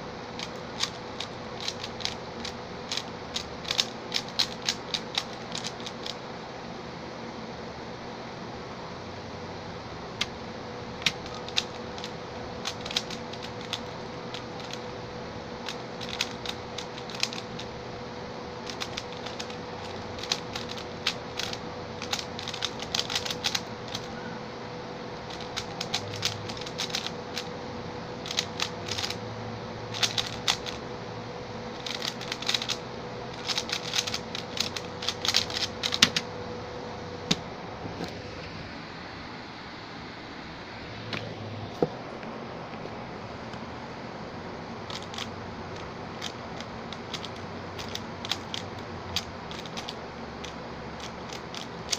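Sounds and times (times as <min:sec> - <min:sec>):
plastic puzzle cube clicking: 0:00.4 - 0:06.2, 0:11.0 - 0:14.8, 0:15.6 - 0:17.7, 0:18.6 - 0:24.1, 0:25.3 - 0:27.5, 0:28.2 - 0:29.2, 0:29.9 - 0:30.8, 0:31.8 - 0:32.8, 0:33.4 - 0:36.2, 0:44.9 - 0:45.3, 0:46.2 - 0:51.9.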